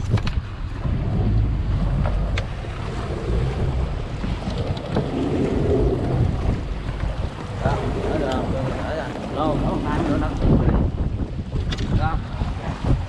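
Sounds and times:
water washing against a hull: 0.0s - 13.0s
wind buffeting the microphone: 0.0s - 13.0s.

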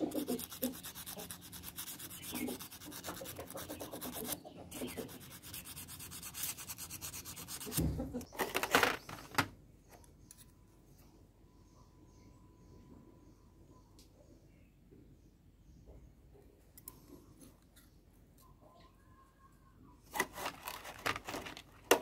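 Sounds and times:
sandpaper rubbing metal spring: 0.0s - 7.8s.

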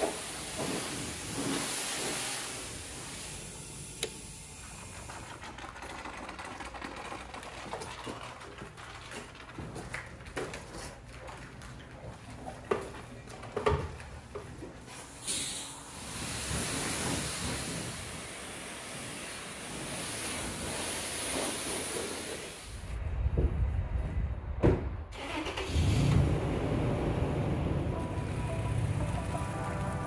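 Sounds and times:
pressure washer spraying: 0.0s - 5.3s, 15.2s - 22.8s.

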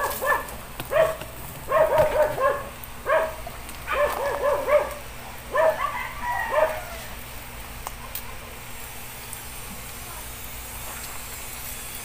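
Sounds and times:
dog barking: 0.0s - 7.0s.

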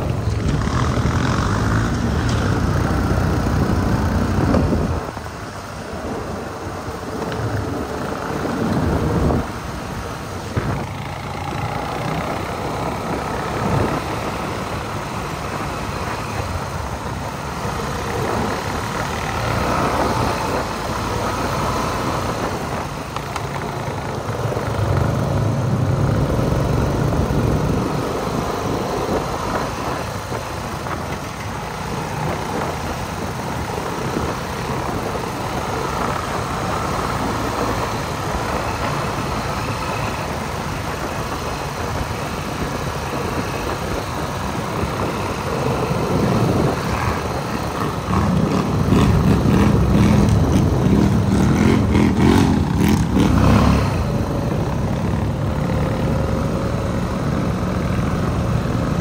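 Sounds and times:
atv engines revving: 0.0s - 59.0s.

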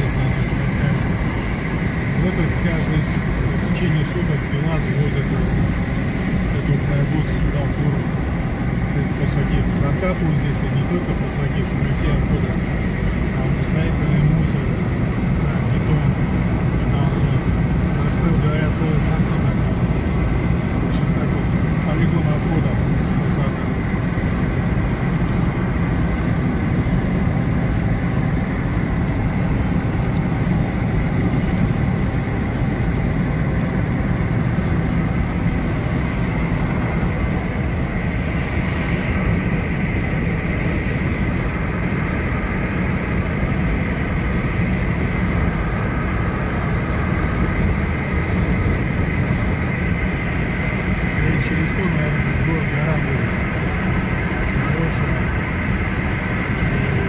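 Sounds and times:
tyres rumbling on asphalt: 0.0s - 57.0s.

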